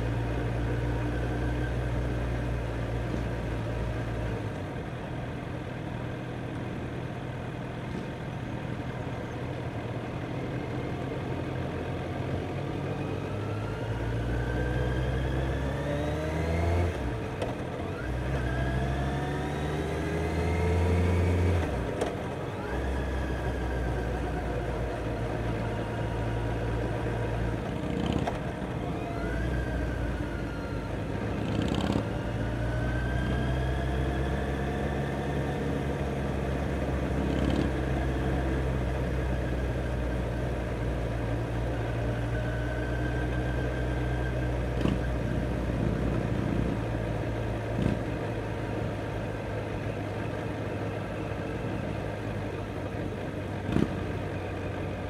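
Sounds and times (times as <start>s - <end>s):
other motorcycle engines revving: 31.4s - 32.3s, 53.6s - 54.3s.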